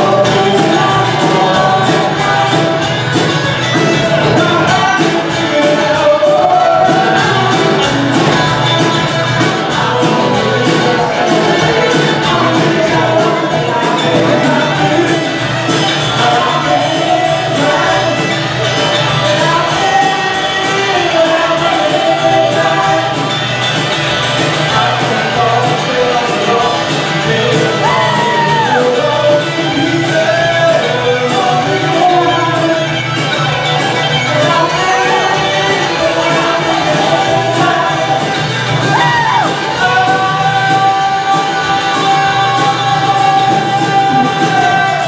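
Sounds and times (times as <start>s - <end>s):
woman singing: 0.0s - 3.2s, 24.7s - 45.0s
live rock band playing: 0.0s - 45.0s.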